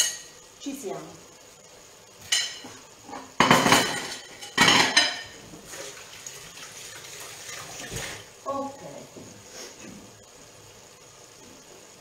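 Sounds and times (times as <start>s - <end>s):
plate and knife clinking: 2.2s - 5.4s
crockery clattering on counter: 2.3s - 5.4s.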